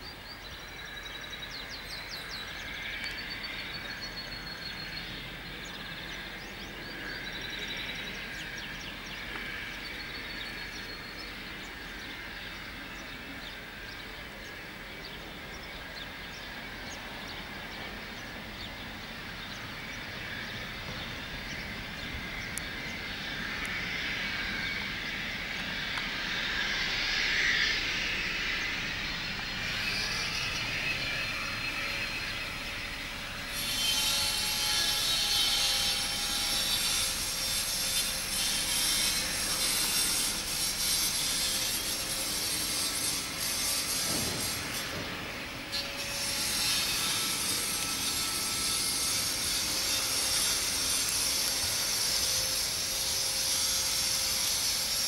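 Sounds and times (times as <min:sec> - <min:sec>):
jet engines rushing: 0:05.0 - 0:33.6.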